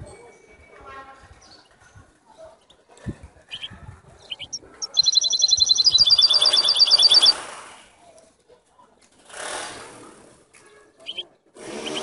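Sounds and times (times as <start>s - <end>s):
canary chirping and trilling: 3.5s - 7.4s, 11.0s - 12.0s.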